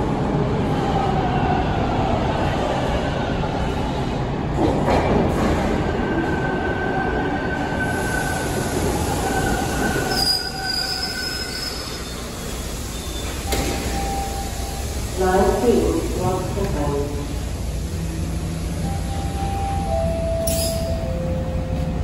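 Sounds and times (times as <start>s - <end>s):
subway train wheels rumbling: 0.0s - 22.0s
wheel and brake squeals: 9.3s - 14.4s.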